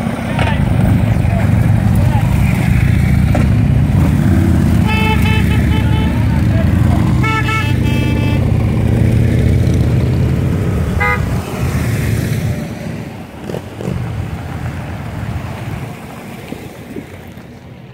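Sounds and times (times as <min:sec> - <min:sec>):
motorcycles rumbling past: 0:00.0 - 0:17.6
horn beep: 0:04.8 - 0:08.5, 0:11.0 - 0:11.3.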